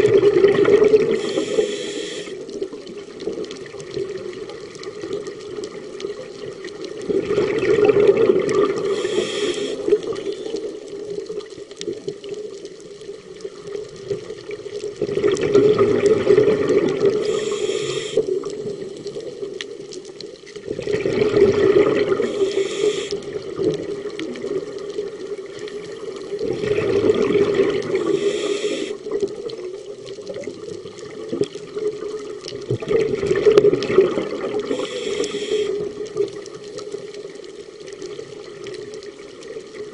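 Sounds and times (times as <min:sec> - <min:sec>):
diver exhaling bubbles: 0:00.0 - 0:02.5, 0:07.0 - 0:10.6, 0:15.0 - 0:18.9, 0:20.7 - 0:24.8, 0:26.4 - 0:29.2, 0:32.7 - 0:36.0
underwater water noise: 0:00.0 - 0:39.9
regulator hiss: 0:01.1 - 0:02.5, 0:08.8 - 0:10.9, 0:17.2 - 0:18.8, 0:22.2 - 0:23.3, 0:27.9 - 0:29.1, 0:34.6 - 0:35.9.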